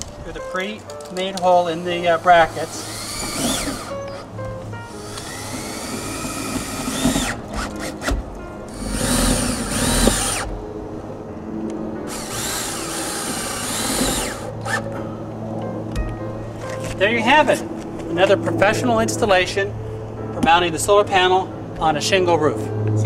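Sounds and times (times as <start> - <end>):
cordless drill driving fasteners: 2.1 - 4.2, 4.9 - 10.5, 12.1 - 14.9.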